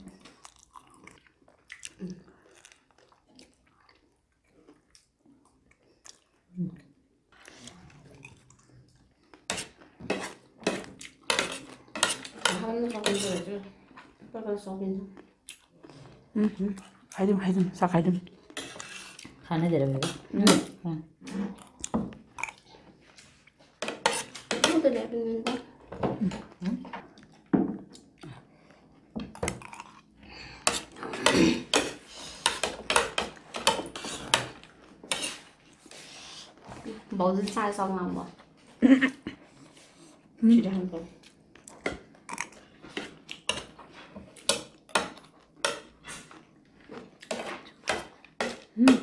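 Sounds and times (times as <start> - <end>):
spoons clinking and scraping plates: 9.5 - 13.6, 18.5 - 19.4, 23.8 - 25.7, 30.6 - 35.5.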